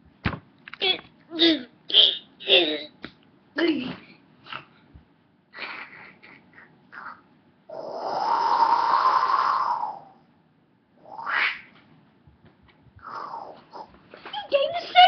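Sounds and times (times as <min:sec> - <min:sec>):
child fake snoring: 0:06.9 - 0:10.2, 0:13.0 - 0:13.9.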